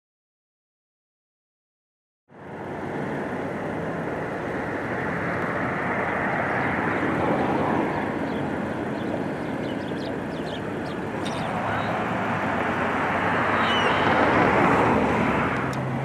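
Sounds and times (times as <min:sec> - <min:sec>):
rushing outdoor noise: 0:02.3 - 0:16.0
faint gull calls: 0:13.4 - 0:14.5.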